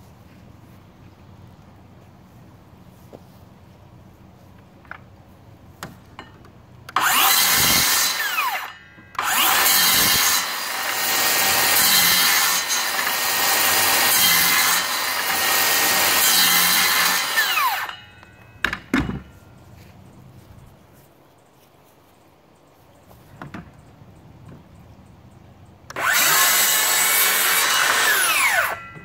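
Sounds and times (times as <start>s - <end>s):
circular saw cutting wood: 6.9s - 18.1s, 25.9s - 29.0s.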